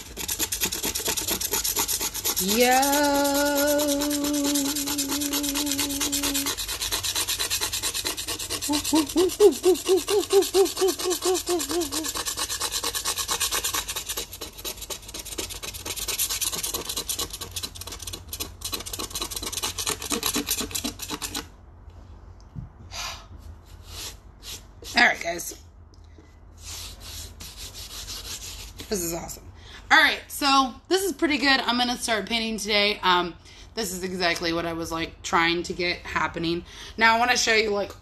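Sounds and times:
paint scraping rasps: 0:00.0 - 0:21.5, 0:23.6 - 0:25.6, 0:26.6 - 0:29.2.

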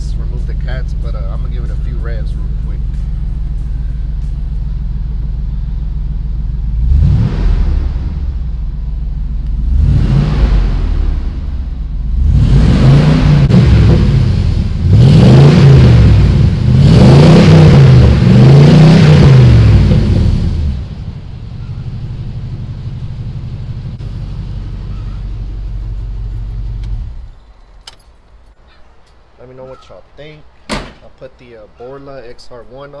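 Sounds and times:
engine idling: 0:00.0 - 0:12.7, 0:17.9 - 0:28.6
pickup engine revving: 0:00.0 - 0:27.4.

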